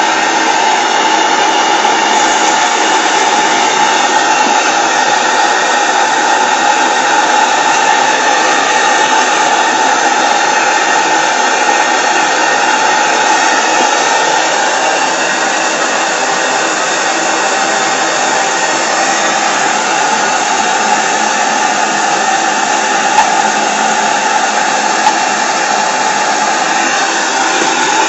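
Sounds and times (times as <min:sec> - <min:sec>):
model steam engine whirring hiss: 0:00.0 - 0:28.0.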